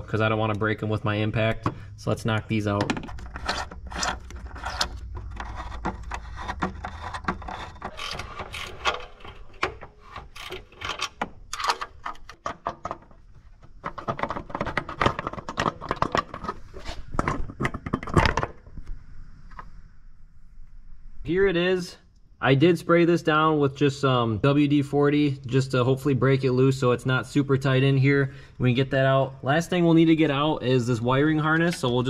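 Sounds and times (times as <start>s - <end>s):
metal clinks and scrapes: 3.0s - 12.4s.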